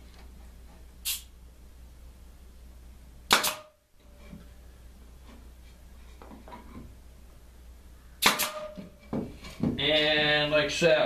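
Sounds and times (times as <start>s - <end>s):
pneumatic nailer firing: 3.3s - 3.8s, 8.2s - 8.8s.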